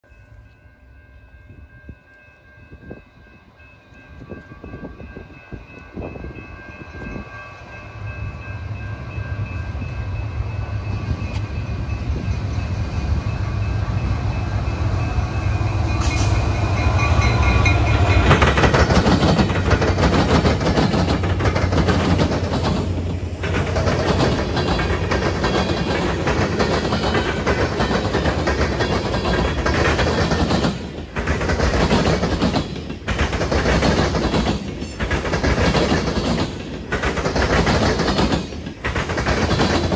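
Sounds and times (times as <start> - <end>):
steel wheels clicking over rail joints: 15.9 - 39.9.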